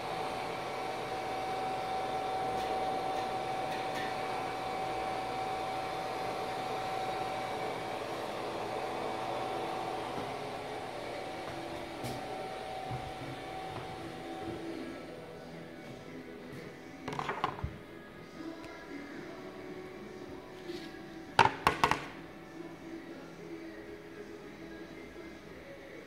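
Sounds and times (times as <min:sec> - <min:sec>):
printer fan whirring: 0:00.0 - 0:15.3.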